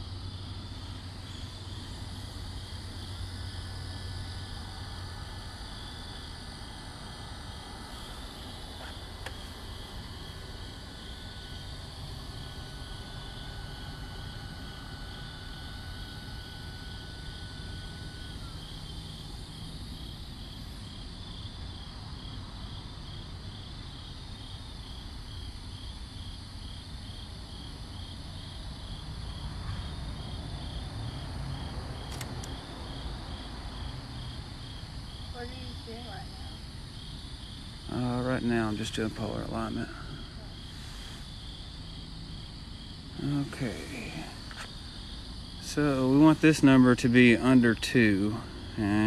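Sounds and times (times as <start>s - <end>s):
crickets chirping: 0.0s - 49.0s
steady low rumble: 35.2s - 49.0s.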